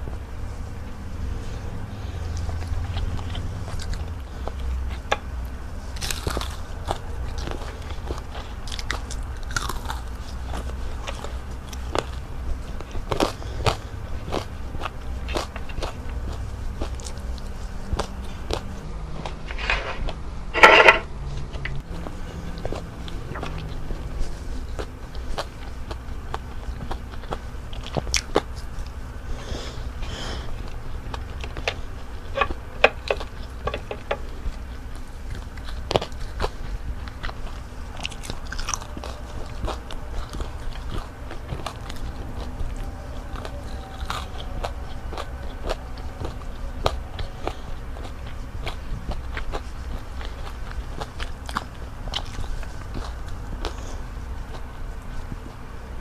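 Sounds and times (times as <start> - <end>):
crunchy chewing: 0.0 - 56.0
low steady hum: 0.0 - 56.0.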